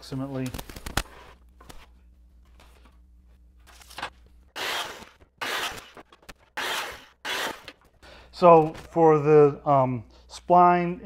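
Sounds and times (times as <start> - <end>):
circular saw cutting wood: 4.6 - 6.0, 6.6 - 7.8.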